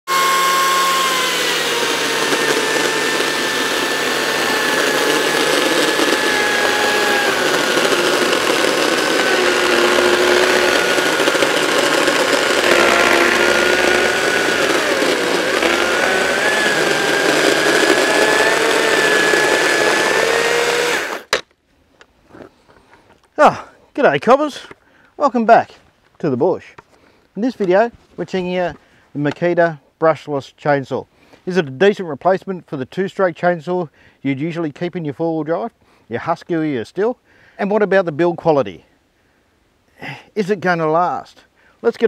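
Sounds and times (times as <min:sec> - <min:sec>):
electric chainsaw cutting wood: 0:00.1 - 0:21.4.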